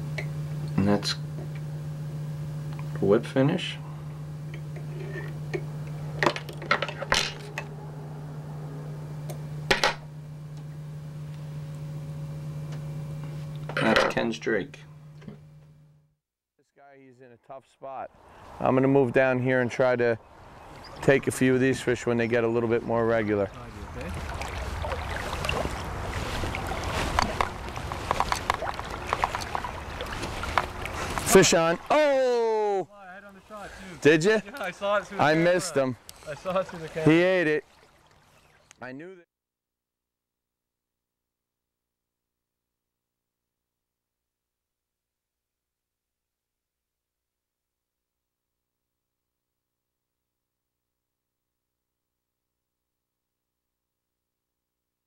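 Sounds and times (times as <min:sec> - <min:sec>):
steady low hum: 0:00.0 - 0:16.1, 0:16.8 - 0:39.2
river water sloshing: 0:20.2 - 0:21.6, 0:23.0 - 0:32.1, 0:33.2 - 0:38.8
steady low rumble: 0:21.1 - 0:31.9
water plops and splashes: 0:24.0 - 0:31.9, 0:37.6 - 0:38.3.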